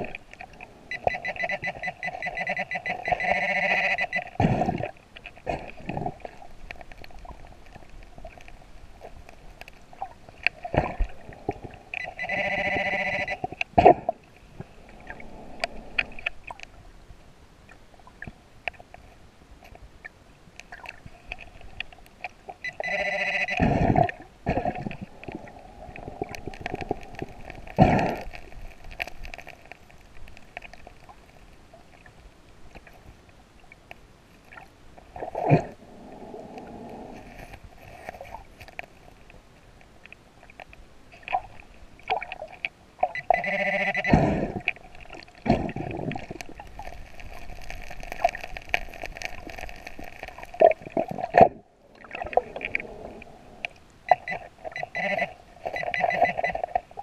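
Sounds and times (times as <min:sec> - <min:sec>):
warbling detector signals: 0:00.0 - 0:04.8, 0:10.8 - 0:13.6, 0:22.6 - 0:28.5, 0:43.0 - 0:44.6, 0:52.0 - 0:57.0
metal detector humming tone: 0:00.9 - 0:04.3, 0:11.9 - 0:13.5, 0:22.6 - 0:23.7, 0:43.2 - 0:44.3.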